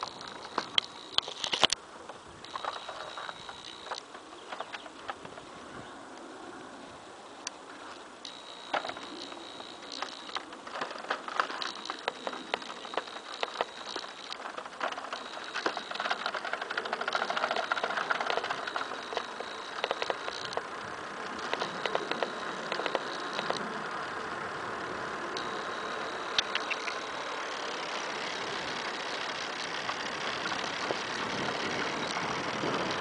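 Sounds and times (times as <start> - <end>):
small rattling clicks: 0.0 - 5.5, 7.4 - 33.0
high electric motor whine: 0.0 - 33.0
tyre noise on asphalt: 7.6 - 33.0.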